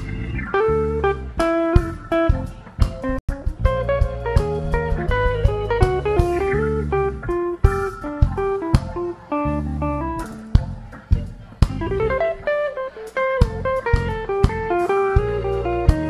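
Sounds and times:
bass guitar: 0.0 - 12.7, 13.3 - 16.0
picked guitar melody: 0.0 - 16.0
drum hits: 1.4 - 9.1, 10.2 - 12.1, 13.4 - 16.0.

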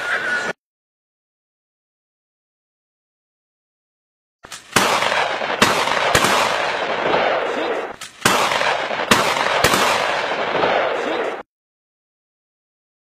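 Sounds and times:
gunshots: 4.4 - 11.4.

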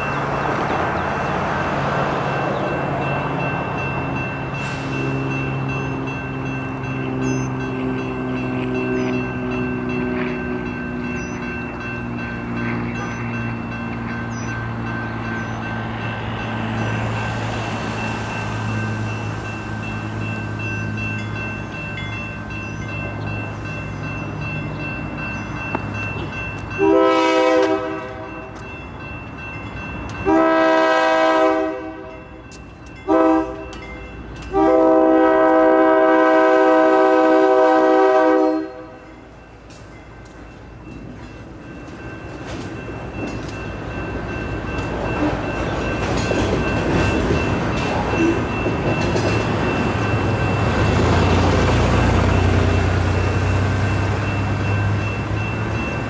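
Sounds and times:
freight train rumbling: 0.0 - 56.0
locomotive horn blasts: 26.8 - 28.6, 30.2 - 32.2, 33.0 - 33.8, 34.5 - 39.0.

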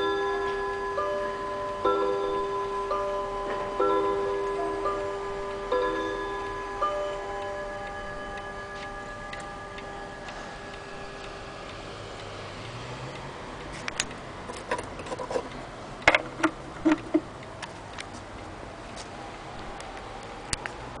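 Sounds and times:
clock chime ringing note: 0.0 - 11.8
sharp clock clicks: 0.0 - 18.4
pendulum clock ticking: 0.0 - 21.0.

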